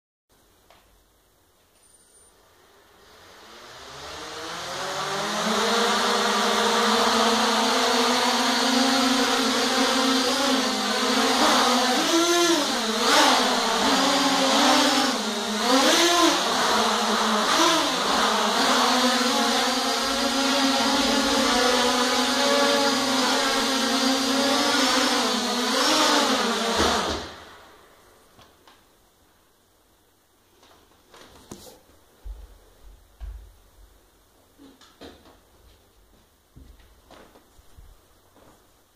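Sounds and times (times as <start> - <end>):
quadcopter motors buzzing: 3.2 - 27.3.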